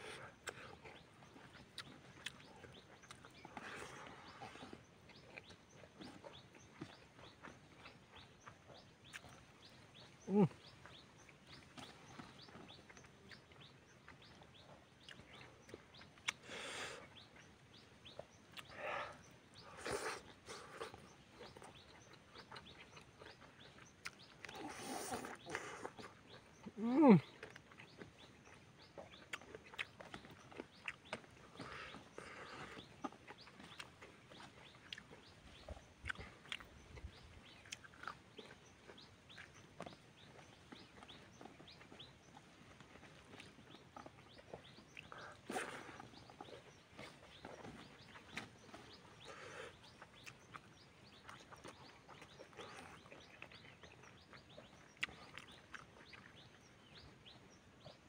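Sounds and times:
person chewing food: 0.0s - 58.0s.

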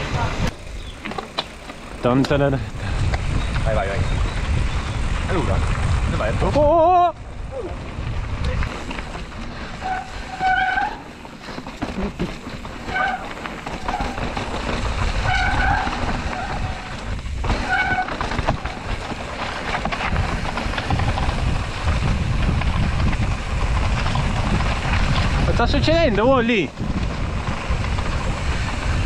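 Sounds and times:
tyres rolling on dirt: 0.0s - 29.0s
bike disc brakes squealing: 0.5s - 2.0s, 9.6s - 19.0s.

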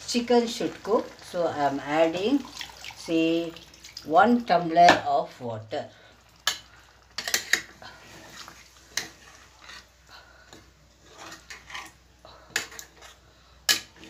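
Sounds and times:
spatula scraping a pan: 6.4s - 14.0s.

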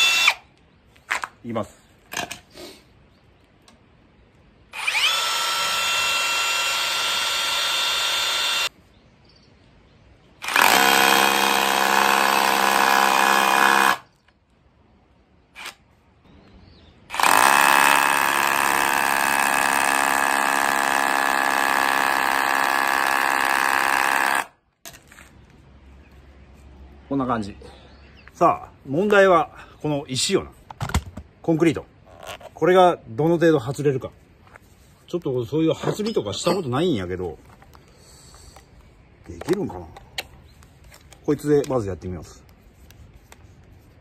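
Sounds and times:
hammer drill boring into wood: 0.0s - 0.4s, 4.8s - 8.7s, 10.4s - 14.1s, 17.1s - 24.5s.

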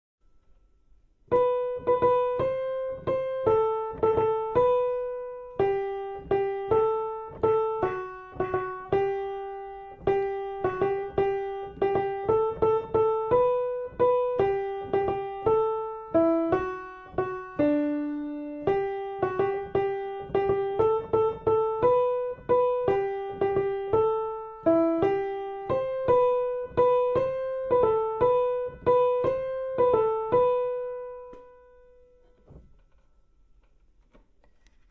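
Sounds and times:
piano melody: 0.2s - 34.0s.

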